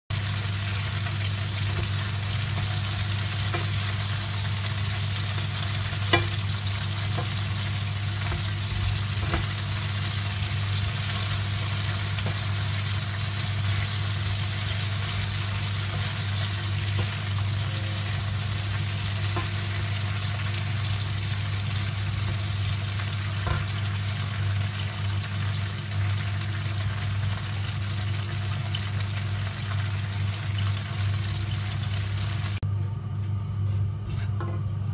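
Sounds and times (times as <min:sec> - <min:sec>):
peppers sizzling in a pan: 0:00.1 - 0:32.6
steady low hum: 0:00.8 - 0:34.9
wooden spoon knocking pan: 0:06.0 - 0:06.5, 0:08.2 - 0:09.7.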